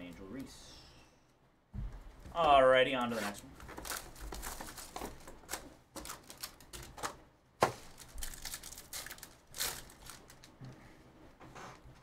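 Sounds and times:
foil wrapper crinkling: 3.2 - 7.1, 7.7 - 10.6.

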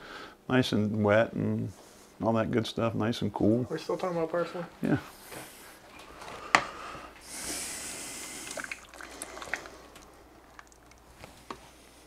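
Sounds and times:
liquid sloshing in pot: 8.3 - 11.7.

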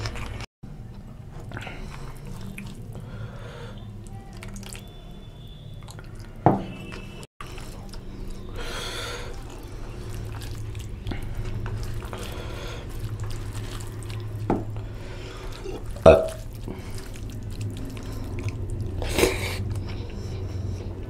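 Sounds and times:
gravy pouring: 5.8 - 20.0.

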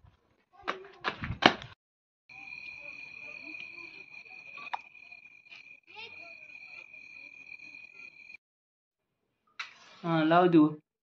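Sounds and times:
crickets chirring: 2.3 - 8.4.

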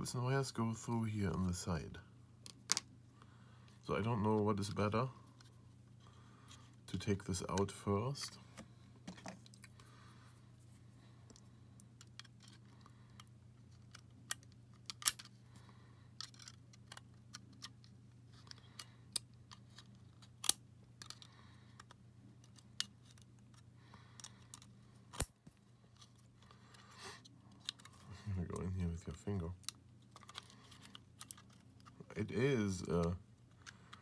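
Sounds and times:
faint low hum: 0.0 - 34.0
plastic and metal parts clicking: 12.0 - 15.3, 16.2 - 17.8, 18.4 - 23.6, 29.6 - 32.0.

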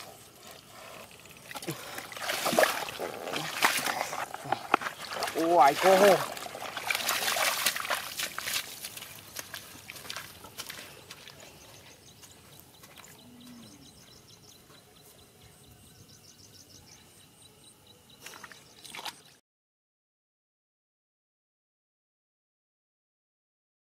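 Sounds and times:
footsteps splashing through water: 1.4 - 13.2, 18.2 - 19.3
bird chirping: 10.8 - 19.4.

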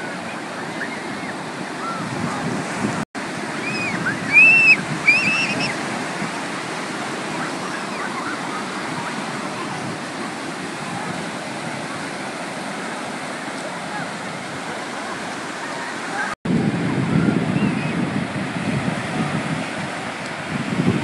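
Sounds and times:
ocean surf washing on shore: 0.0 - 21.0
children shouting: 3.6 - 5.8, 7.2 - 9.8.

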